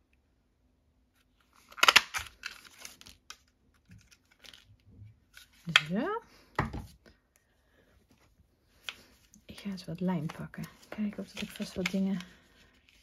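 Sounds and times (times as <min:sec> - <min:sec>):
light paper rustling: 0:08.1 - 0:13.0.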